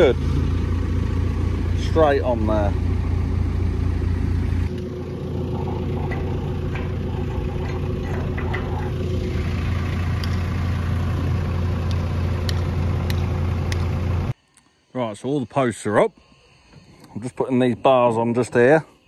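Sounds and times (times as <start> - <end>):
diesel engine idling: 0.0 - 14.4.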